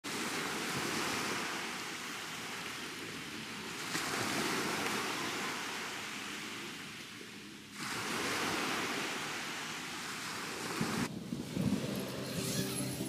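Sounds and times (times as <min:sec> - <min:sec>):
waves breaking on beach: 0:00.0 - 0:13.0.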